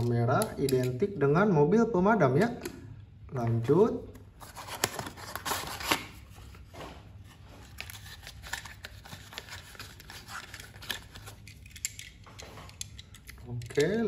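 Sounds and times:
cardboard packaging scraping and rustling: 4.4s - 11.3s.

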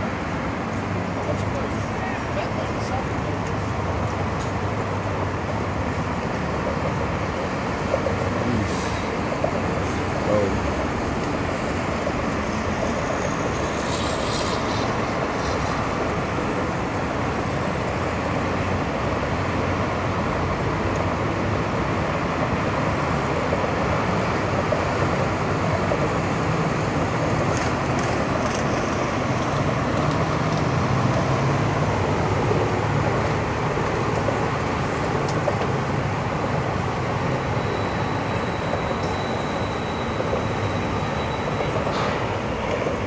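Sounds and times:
boat engine drone: 0.0s - 43.0s
thin high whine: 37.3s - 42.3s.

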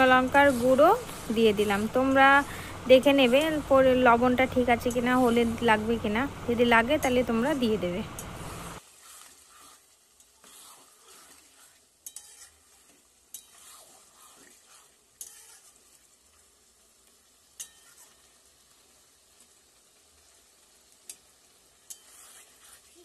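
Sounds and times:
meat sizzling: 0.0s - 23.0s
spatula stirring swishes: 0.0s - 23.0s
spatula clinking on metal pan: 17.6s - 18.0s.

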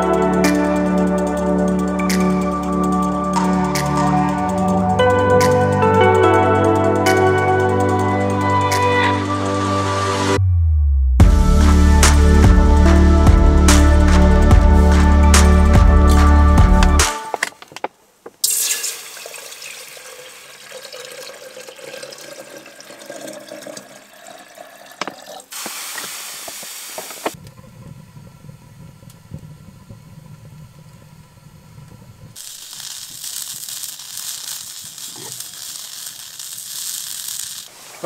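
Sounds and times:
water pouring into a kettle: 18.4s - 26.7s.

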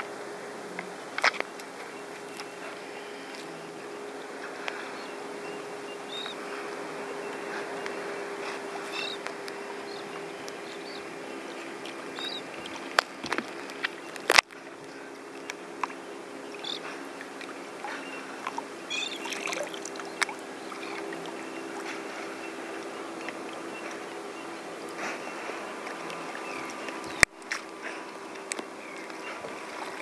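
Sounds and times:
steady low hum: 0.0s - 30.0s
waves lapping against kayak hull: 1.1s - 30.0s
drips and clicks: 18.4s - 22.0s.

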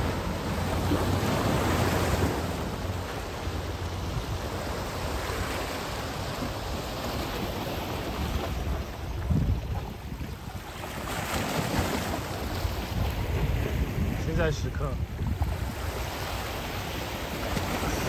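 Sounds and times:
wind rushing over microphone: 3.5s - 10.6s, 12.0s - 18.0s.

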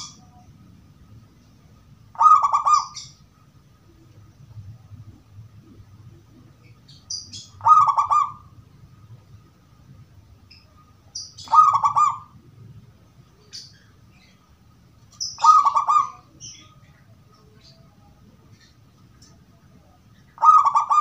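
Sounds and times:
dove cooing: 2.1s - 3.2s, 5.0s - 8.6s, 11.4s - 12.5s, 15.4s - 16.8s, 20.4s - 21.0s.

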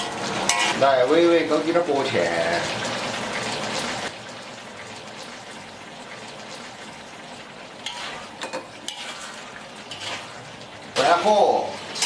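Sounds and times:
ladle scraping a wok: 0.0s - 1.0s, 7.8s - 12.0s
stew sizzling in a wok: 0.0s - 12.0s.

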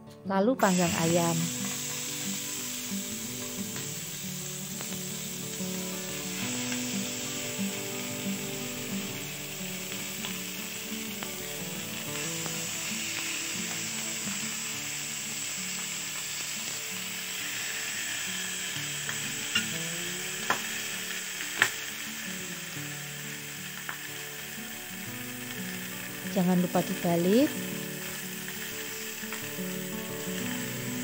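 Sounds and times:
chicken sizzling on grill pan: 0.6s - 31.0s
utensil clicking on pan: 20.4s - 22.0s.

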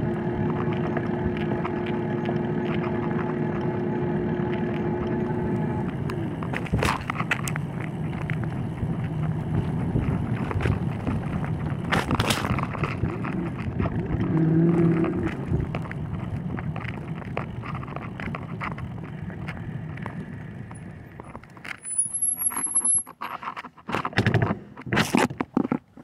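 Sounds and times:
low hum: 0.0s - 23.2s
bicycle tyres rolling on pavement: 0.0s - 26.0s
wind buffeting microphone: 5.0s - 21.2s
clicks and rattles: 9.9s - 26.0s.

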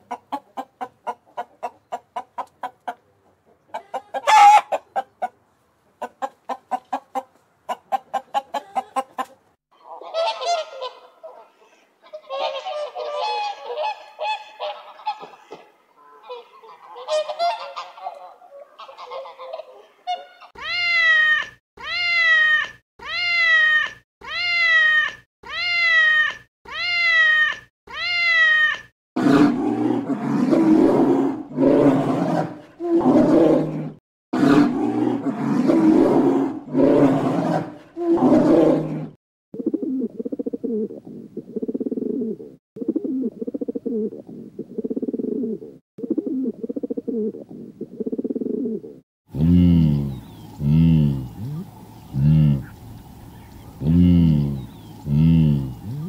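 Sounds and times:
soft low animal calls: 48.1s - 52.8s, 53.4s - 56.0s
rough low animal calls: 48.4s - 52.8s, 53.4s - 56.0s
pitched animal calls: 49.4s - 52.8s, 53.8s - 56.0s.

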